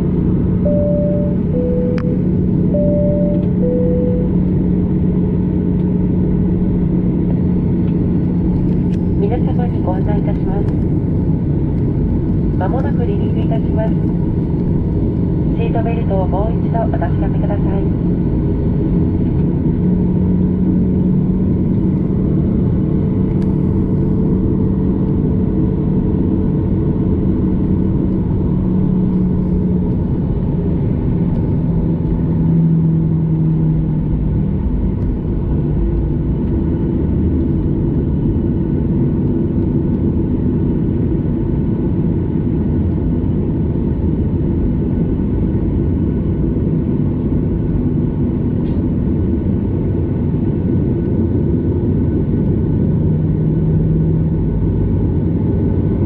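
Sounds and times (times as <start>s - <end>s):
jet engines rumbling: 0.0s - 56.0s
low hum: 0.0s - 56.0s.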